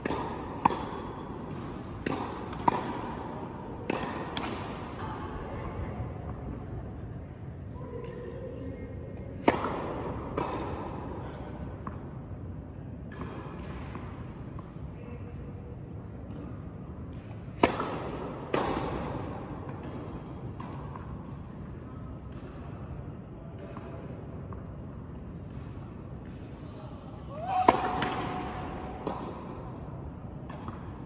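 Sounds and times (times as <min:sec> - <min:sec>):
tennis ball hit by racket: 0:00.0 - 0:04.8, 0:09.3 - 0:12.0, 0:17.3 - 0:21.4, 0:27.4 - 0:31.0.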